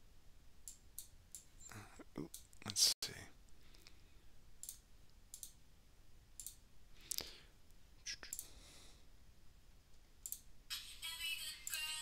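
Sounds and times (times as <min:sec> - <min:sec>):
computer mouse clicks: 0:04.6 - 0:05.6, 0:06.4 - 0:07.3, 0:10.2 - 0:10.5.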